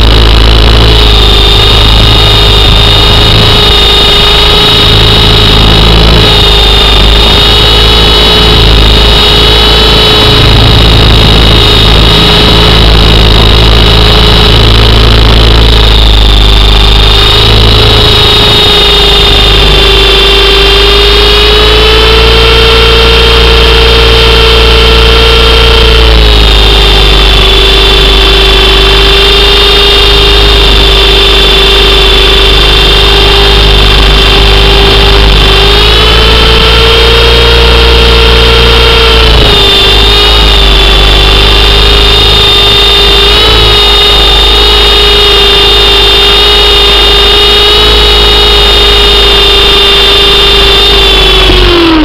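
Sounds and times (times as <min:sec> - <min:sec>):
model helicopter motor whine: 0:00.0 - 0:52.0.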